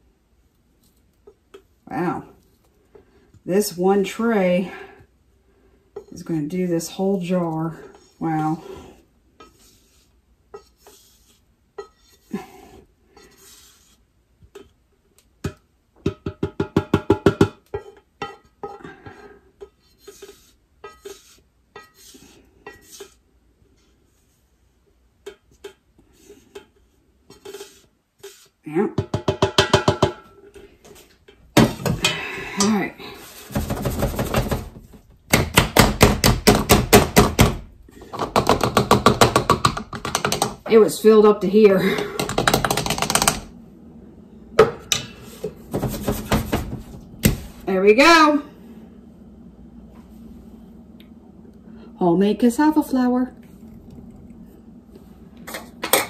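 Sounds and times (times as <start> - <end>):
soft scraping and handling: 0.5 - 1.7, 7.1 - 14.8, 17.8 - 28.6, 44.9 - 47.7, 49.8 - 51.0.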